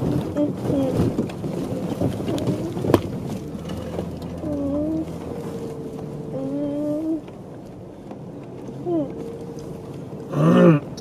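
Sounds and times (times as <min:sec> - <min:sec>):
vehicle body creaking: 0:00.0 - 0:10.2
low engine hum: 0:00.0 - 0:11.0.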